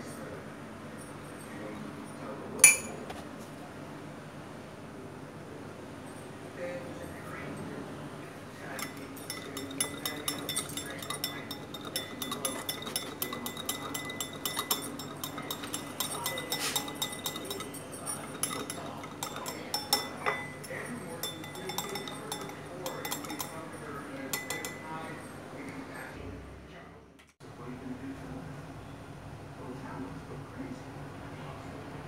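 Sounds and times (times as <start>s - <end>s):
whisk clinking against bowl: 2.6s - 3.0s, 8.6s - 25.8s.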